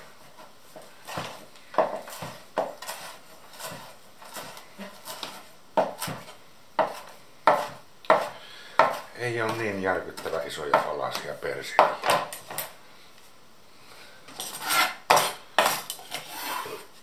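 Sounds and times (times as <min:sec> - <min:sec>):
knife chopping on wooden board: 0:01.1 - 0:12.3, 0:14.6 - 0:15.9.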